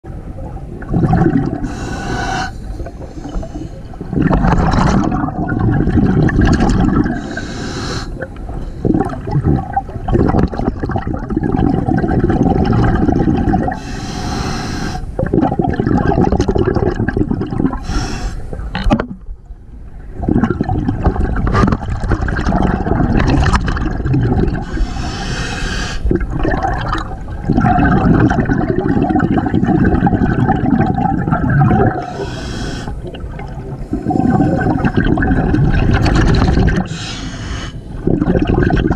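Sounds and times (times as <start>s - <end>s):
exhaled air bubbling: 0.1s - 38.9s
regulator hissing inhales: 1.6s - 3.8s, 7.2s - 8.8s, 13.8s - 15.2s, 17.8s - 18.5s, 24.6s - 26.1s, 32.0s - 33.0s, 36.9s - 37.9s.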